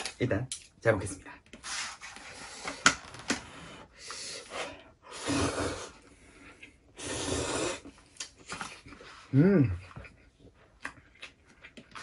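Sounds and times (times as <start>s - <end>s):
person slurping noodles: 4.2s - 6.0s, 6.6s - 9.8s.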